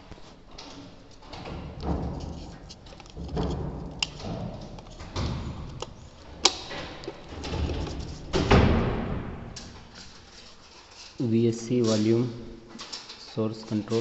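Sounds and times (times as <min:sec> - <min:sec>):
plastic plate rubbing and scraping: 0:01.8 - 0:08.4.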